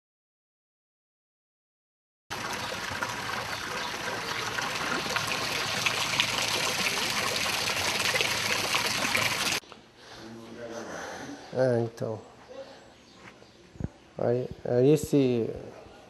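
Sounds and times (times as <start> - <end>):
fountain water splashing into basin: 2.3 - 9.6.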